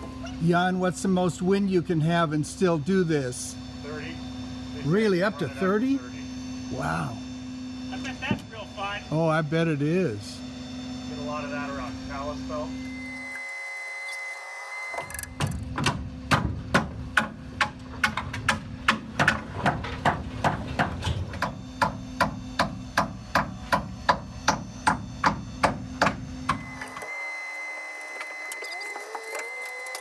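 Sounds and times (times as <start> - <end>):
hammer driving nails into wood: 15.3 - 26.6.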